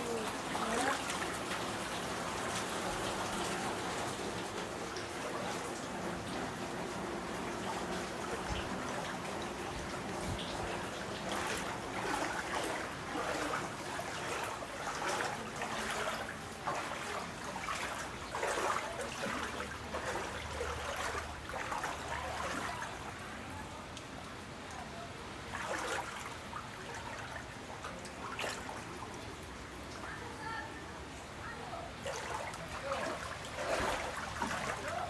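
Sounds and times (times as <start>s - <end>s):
trickle of running water: 0.0s - 35.0s
footsteps wading through water: 7.2s - 30.1s, 31.9s - 35.0s.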